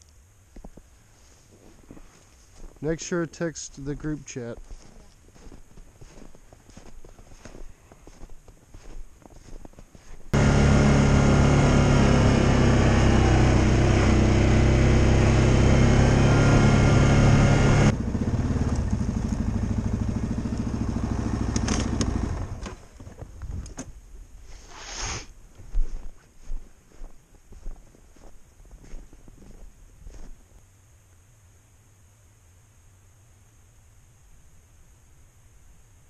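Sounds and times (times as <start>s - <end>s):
vehicle engine running: 10.4s - 23.2s.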